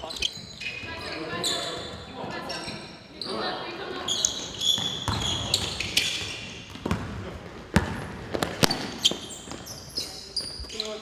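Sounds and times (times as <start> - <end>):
sneakers squeaking: 0.0 - 11.0
basketball bouncing on wooden floor: 4.8 - 9.7.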